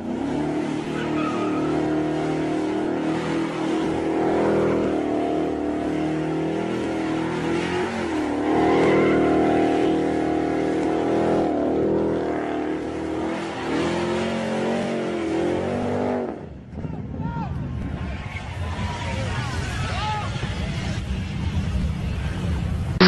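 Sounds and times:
car engine at high revs: 0:00.0 - 0:16.6.

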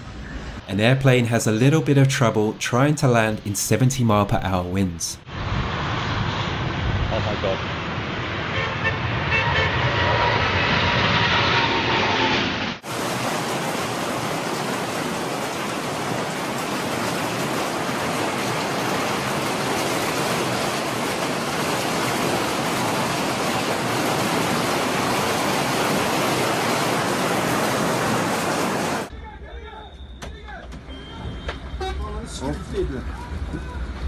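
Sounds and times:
hail and rain pelting ground: 0:12.8 - 0:29.1.

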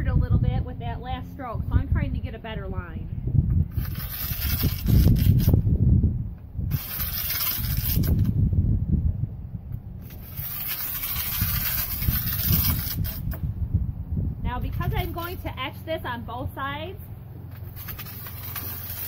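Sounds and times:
wind rumble on microphone: 0:00.0 - 0:19.0
glass cutter scoring glass: 0:03.7 - 0:05.6, 0:06.7 - 0:08.3, 0:10.0 - 0:13.4, 0:14.6 - 0:15.5, 0:17.5 - 0:19.0.

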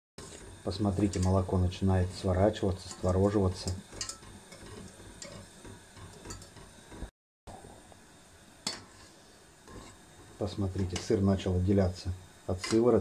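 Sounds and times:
whisk scraping pot: 0:00.2 - 0:07.1, 0:08.7 - 0:11.2
metal clinks against pot: 0:03.6 - 0:06.8.

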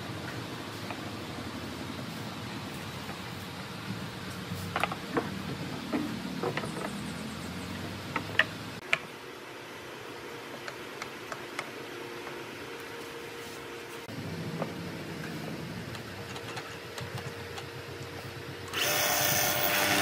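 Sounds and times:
steady low hum: 0:00.0 - 0:19.4
wood and tools clicking and knocking: 0:04.6 - 0:07.0, 0:08.1 - 0:09.1.

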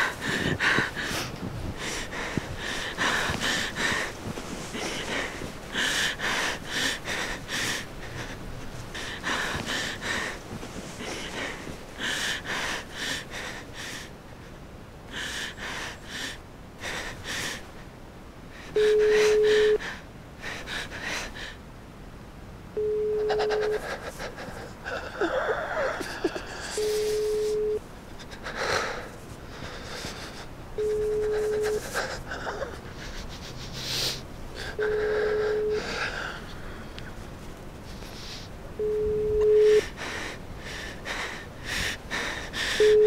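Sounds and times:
woman breathing heavily: 0:00.0 - 0:17.8, 0:18.5 - 0:21.6, 0:22.8 - 0:43.0
phone call tone beeps: 0:18.8 - 0:19.8, 0:22.8 - 0:23.8, 0:26.8 - 0:27.8, 0:30.8 - 0:31.8, 0:34.8 - 0:35.9, 0:38.8 - 0:39.9, 0:42.8 - 0:43.0.

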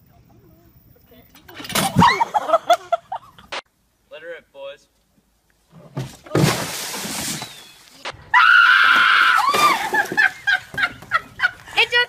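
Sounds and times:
woman screaming: 0:08.3 - 0:09.9.

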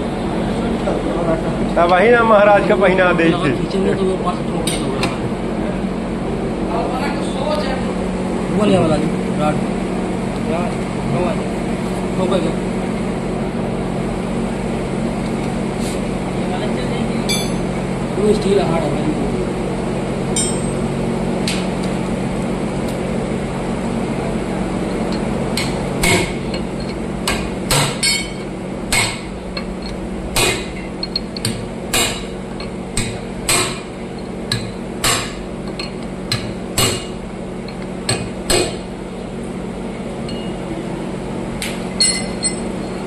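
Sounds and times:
steady low hum: 0:00.0 - 0:43.0
hammer striking metal: 0:20.4 - 0:20.8, 0:25.6 - 0:29.3, 0:30.4 - 0:33.9, 0:34.5 - 0:37.2, 0:38.1 - 0:38.8.

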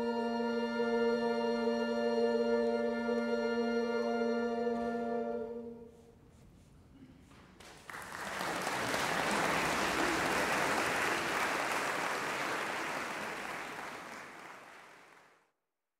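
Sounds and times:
audience applauding: 0:07.5 - 0:15.5.

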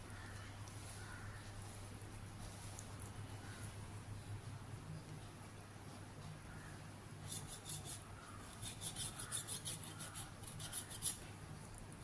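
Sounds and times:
knife scraping chicken bone: 0:07.2 - 0:11.2.

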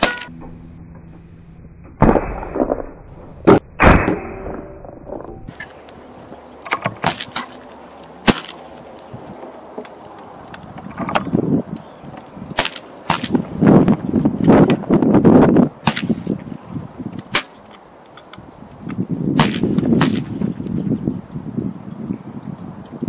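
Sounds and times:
low rumbling noise: 0:00.0 - 0:22.6
air rifle shots cracking: 0:08.2 - 0:08.6, 0:12.6 - 0:13.4, 0:15.8 - 0:16.3, 0:19.4 - 0:20.4.

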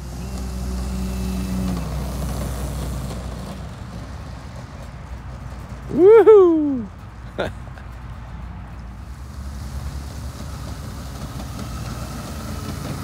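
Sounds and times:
model plane electric motor humming: 0:00.0 - 0:04.5, 0:09.1 - 0:13.0.

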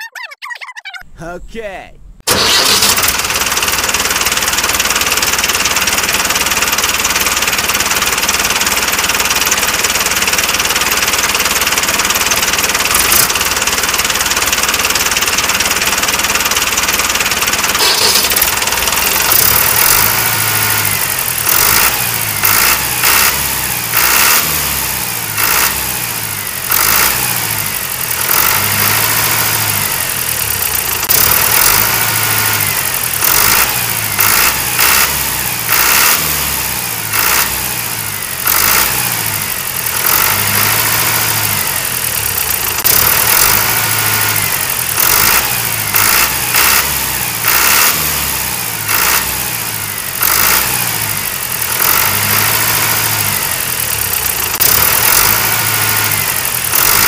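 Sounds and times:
tractor engine chugging: 0:02.3 - 0:57.0.

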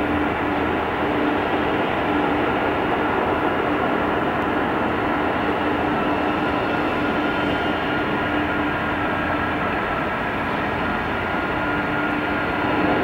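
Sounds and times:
jet engines rushing: 0:00.0 - 0:13.0
steady whining tones: 0:00.0 - 0:13.0.

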